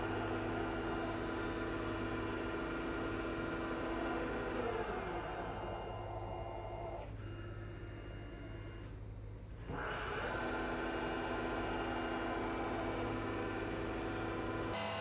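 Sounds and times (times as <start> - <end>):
steady machine whine: 10.8 - 15.0.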